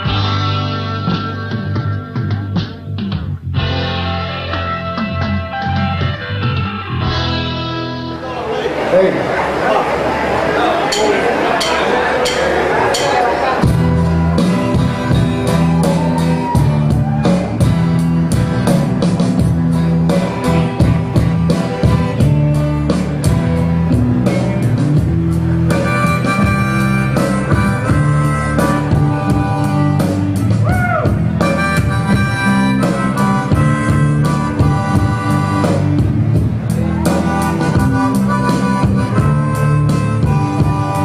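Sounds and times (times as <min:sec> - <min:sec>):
live blues rock band: 0:00.0 - 0:08.2, 0:12.5 - 0:41.0
harmonica: 0:13.6 - 0:41.0.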